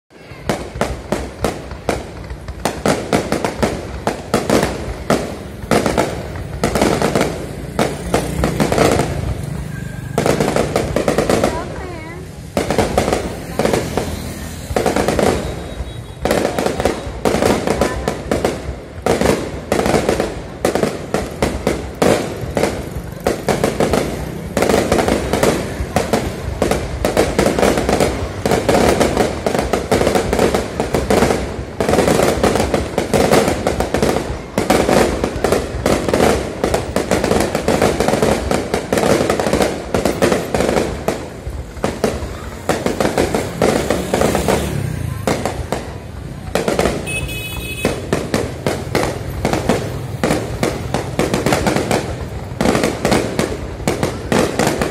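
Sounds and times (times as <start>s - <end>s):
fireworks launching and bursting: 0.1s - 54.9s.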